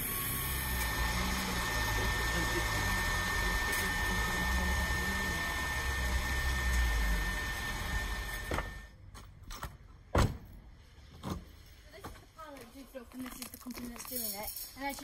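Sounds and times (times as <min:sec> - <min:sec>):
diesel truck engine rumbling: 0:00.0 - 0:08.8
steady high whine: 0:00.0 - 0:09.0.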